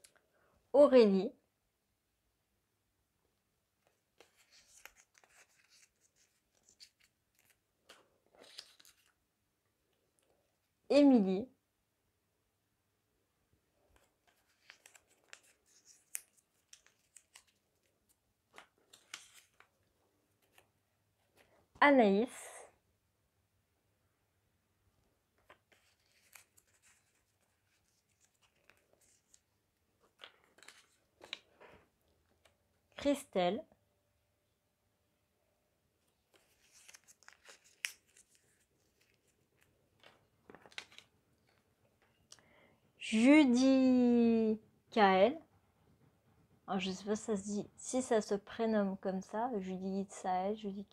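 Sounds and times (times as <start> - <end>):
paper crinkling: 3.8 - 9.2, 13.8 - 21.6, 25.3 - 32.6, 36.0 - 42.2.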